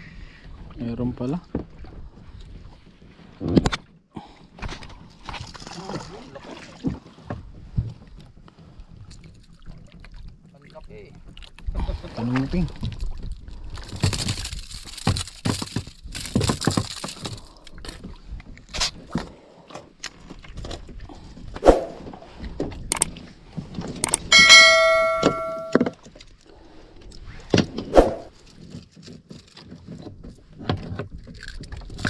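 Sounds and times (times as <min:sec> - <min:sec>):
knocks and clatter on wooden deck: 0:13.8 - 0:17.4
notification bell chime: 0:24.3 - 0:25.8.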